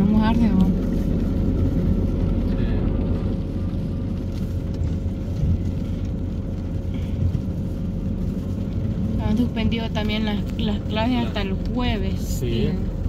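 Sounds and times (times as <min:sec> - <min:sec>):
engine and road noise rumble: 0:00.0 - 0:13.0.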